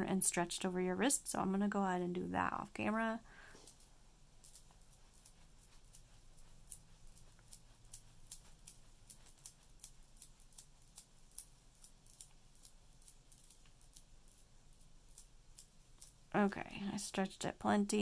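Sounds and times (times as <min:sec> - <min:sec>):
beads clicking together: 0:03.5 - 0:16.5.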